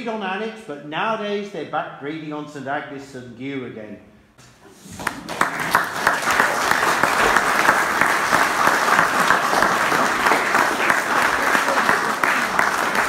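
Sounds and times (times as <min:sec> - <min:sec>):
audience applauding: 0:04.9 - 0:13.0.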